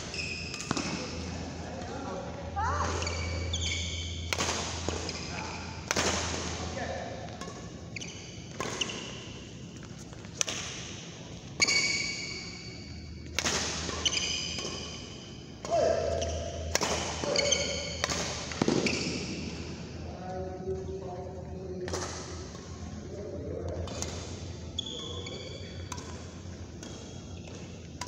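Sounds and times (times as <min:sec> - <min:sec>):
shoes squeaking on court: 0:00.0 - 0:01.2, 0:02.8 - 0:05.6, 0:07.4 - 0:10.4, 0:11.4 - 0:15.4, 0:16.1 - 0:19.4, 0:24.7 - 0:26.0
rackets hitting shuttlecock: 0:00.4 - 0:01.1, 0:02.8 - 0:06.7, 0:08.5 - 0:09.1, 0:10.2 - 0:10.9, 0:13.2 - 0:15.0, 0:15.6 - 0:19.1, 0:25.4 - 0:28.0.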